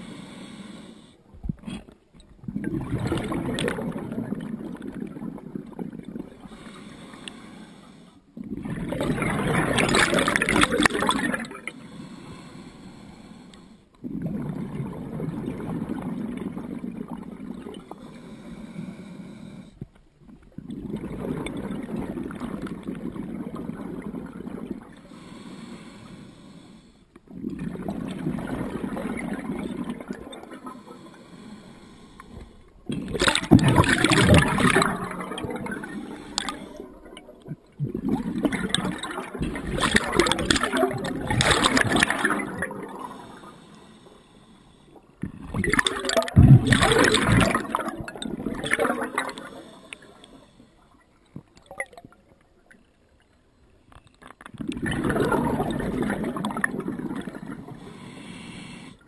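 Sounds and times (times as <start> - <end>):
gurgling exhaled bubbles: 1.4 - 6.8, 8.4 - 11.7, 14.0 - 18.1, 20.2 - 25.1, 27.2 - 31.2, 31.9 - 43.6, 45.1 - 50.5, 54.4 - 58.2
hissing regulator inhales: 6.5 - 8.2, 11.8 - 13.9, 18.0 - 19.8, 25.1 - 27.1, 30.7 - 32.7, 43.1 - 45.2, 49.3 - 51.0, 57.6 - 59.0.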